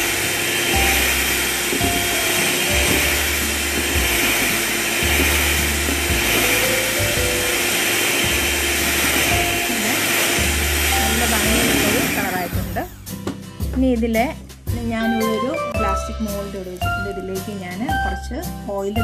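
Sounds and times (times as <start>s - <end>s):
electric hand mixer running: 0.0s - 13.4s.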